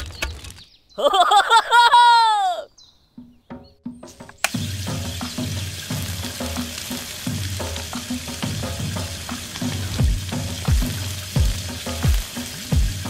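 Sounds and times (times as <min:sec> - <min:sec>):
background music with bass line: 0:03.3 - 0:13.0
crackling hiss: 0:04.1 - 0:13.0
deep electronic drum hits: 0:07.4 - 0:13.0.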